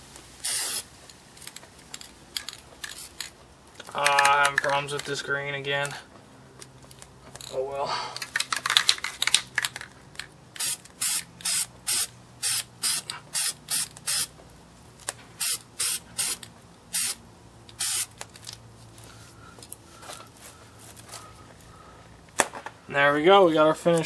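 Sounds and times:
spray paint can hissing: 0:00.4 - 0:00.9, 0:10.6 - 0:14.3, 0:15.4 - 0:18.2.

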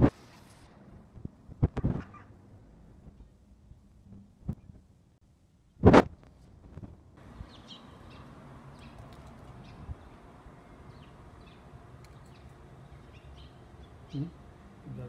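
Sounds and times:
small birds chirping: 0:07.2 - 0:15.0.

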